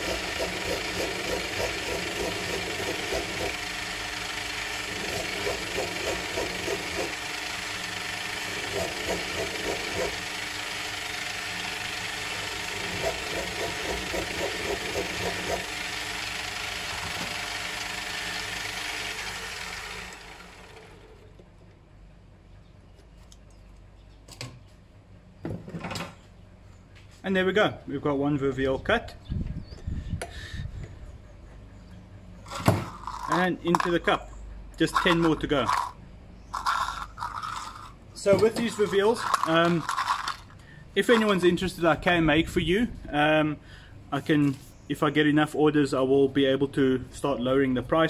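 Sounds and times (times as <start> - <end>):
metal lathe running: 0.0 - 21.3, 32.5 - 33.9, 34.8 - 36.0, 36.6 - 41.5.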